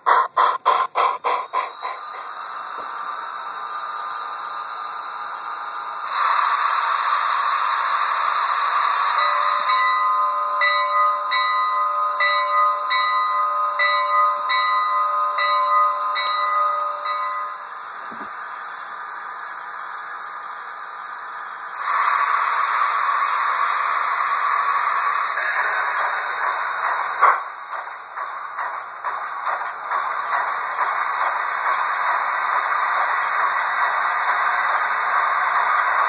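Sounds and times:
steady steam hiss: 0.0s - 9.7s, 17.6s - 36.0s
steam locomotive exhaust chuffs: 0.0s - 36.0s.

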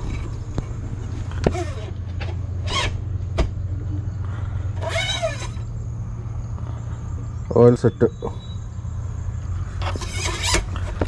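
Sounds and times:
low hum: 0.0s - 11.0s
dipstick scraping in metal tube: 4.8s - 5.7s.

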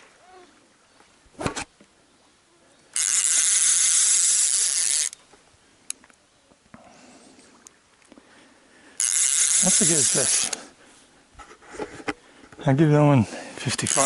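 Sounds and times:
fishing reel drag buzzing: 2.9s - 5.2s, 9.0s - 10.8s, 13.6s - 14.0s.

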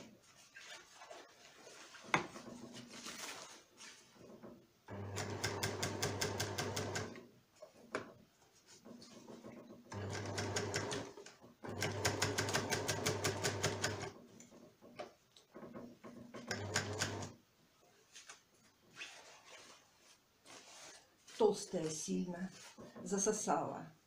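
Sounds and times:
overlocker stitching fabric: 4.2s - 7.3s, 8.7s - 14.6s, 15.7s - 17.4s.

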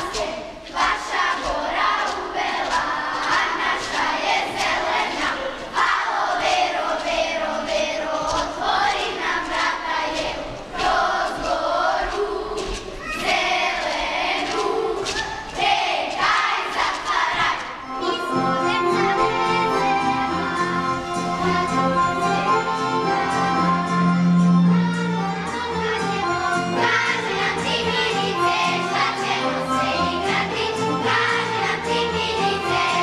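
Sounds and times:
group singing in chorus: 0.0s - 24.0s, 26.0s - 33.0s
folk band accordion and strings: 17.4s - 33.0s.

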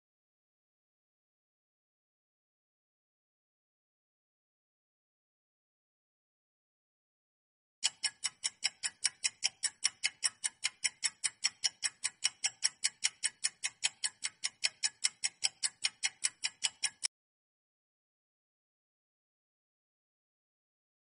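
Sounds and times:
quick clock-like ticking: 7.8s - 17.1s.

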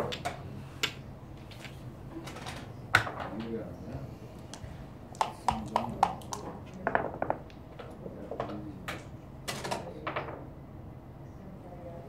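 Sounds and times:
dice and checkers clicking on board: 5.2s - 8.0s.

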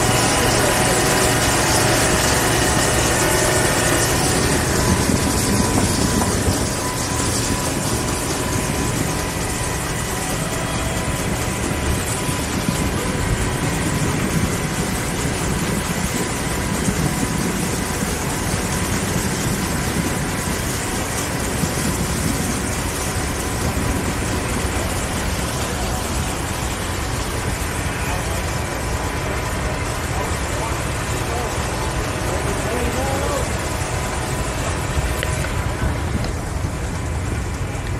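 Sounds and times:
engines and machinery running: 0.0s - 37.9s
faint steady whine: 0.0s - 37.9s
people talking: 0.0s - 37.9s.

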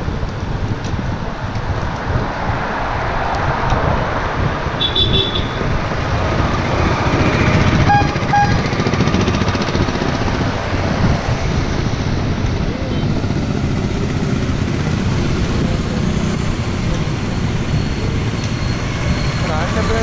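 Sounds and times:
road traffic: 0.0s - 20.0s
wind on microphone: 0.0s - 20.0s
motor scooter overtaking: 2.8s - 20.0s
vehicle horn toots: 4.8s - 5.7s, 7.8s - 8.7s.

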